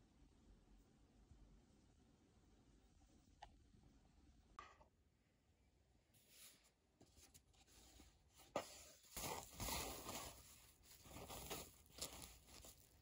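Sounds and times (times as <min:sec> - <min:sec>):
wrapping paper rustling and crinkling: 0:08.4 - 0:13.0.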